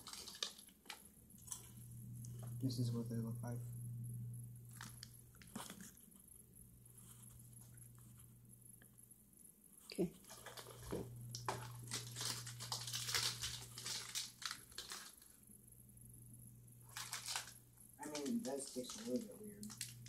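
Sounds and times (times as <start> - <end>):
plastic wrappers crinkling: 0.0 - 1.8, 4.7 - 6.0, 10.2 - 15.4, 16.8 - 20.0
steady low hum: 0.0 - 20.0.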